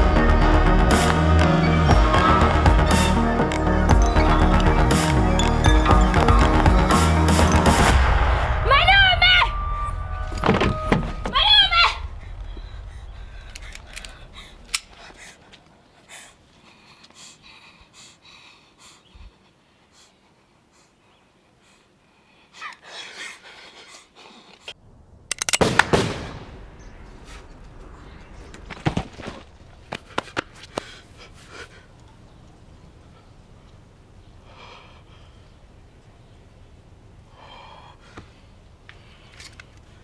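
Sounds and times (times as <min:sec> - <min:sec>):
heavy breathing: 0:12.1 - 0:24.8.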